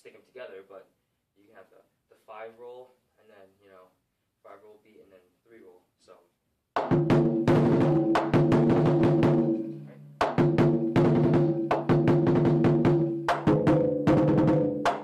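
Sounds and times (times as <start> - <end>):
large drums struck with sticks: 6.8 - 15.0.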